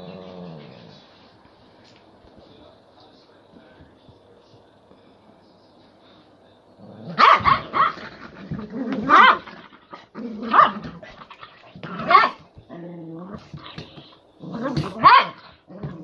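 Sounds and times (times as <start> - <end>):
dogs barking and growling: 0.0 - 1.2, 6.8 - 16.0.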